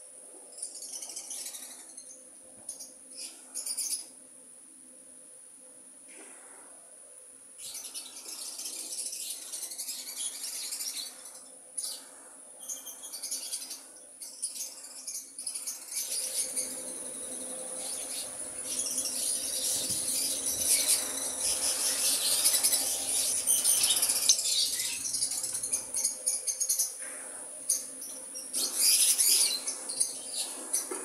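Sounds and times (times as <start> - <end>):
lovebirds chirping and squeaking: 7.6 - 27.0, 27.7 - 31.0.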